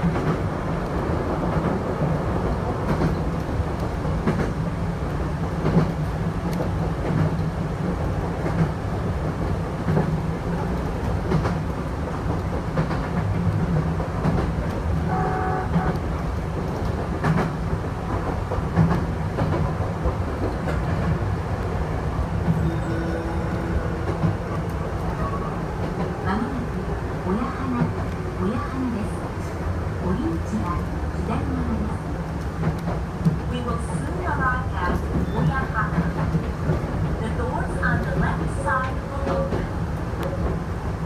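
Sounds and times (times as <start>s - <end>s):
train rumbling: 0.0s - 41.0s
short high tone: 22.6s - 24.4s.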